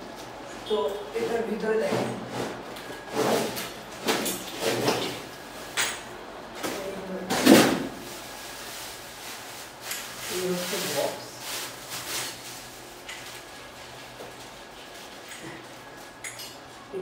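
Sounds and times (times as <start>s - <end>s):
cardboard and plastic rustling: 6.6s - 16.2s.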